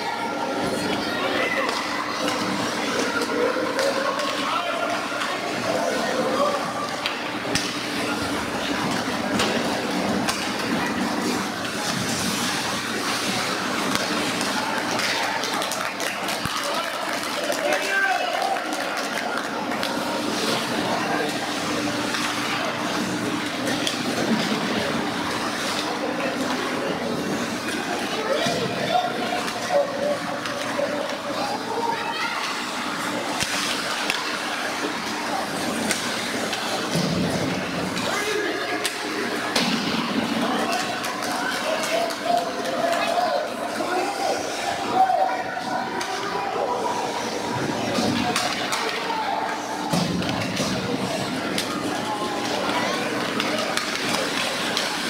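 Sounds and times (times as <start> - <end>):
low arena hum: 0.0 - 55.0
spectators chatting: 0.0 - 55.0
hockey sticks and puck clacking: 1.6 - 5.5, 6.9 - 31.5, 32.4 - 43.8, 47.8 - 49.1, 49.8 - 55.0.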